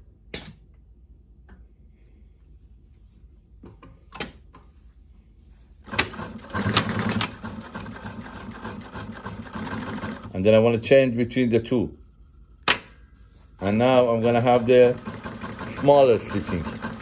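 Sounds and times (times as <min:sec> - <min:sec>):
sewing machine stitching: 0:05.9 - 0:10.6, 0:13.6 - 0:17.0.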